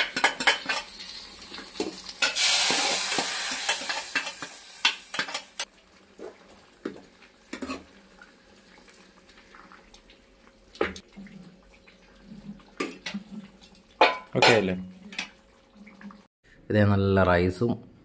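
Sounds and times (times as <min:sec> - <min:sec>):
utensils clinking on pots: 0:00.0 - 0:05.7, 0:12.8 - 0:15.4.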